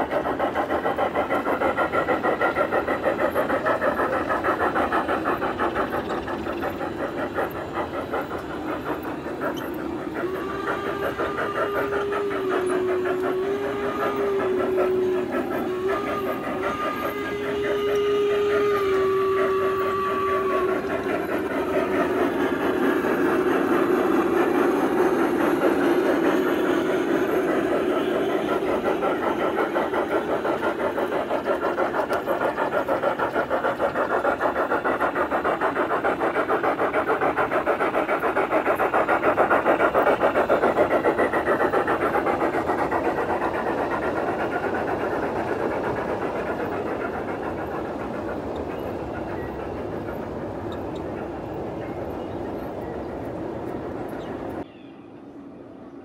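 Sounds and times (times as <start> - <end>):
model steam locomotive chuffing: 0.0 - 56.0
train wheel noise: 0.0 - 56.0.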